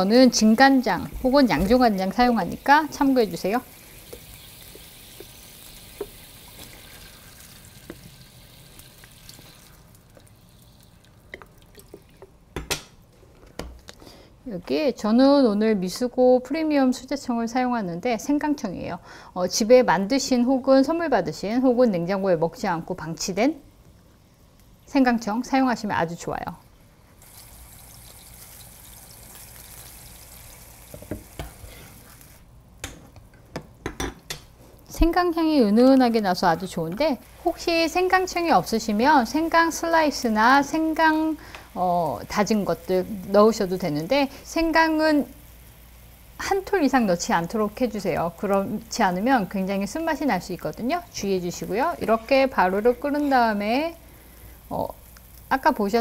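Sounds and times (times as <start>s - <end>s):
liquid simmering in a frying pan: 0.0s - 12.6s, 26.9s - 32.9s, 34.3s - 56.0s.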